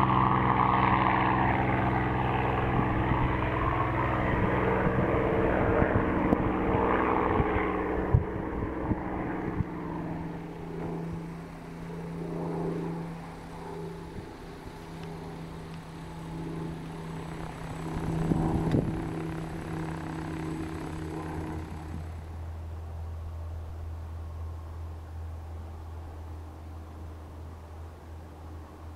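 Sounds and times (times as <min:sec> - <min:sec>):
propeller aircraft engine drone: 0:00.0 - 0:28.9.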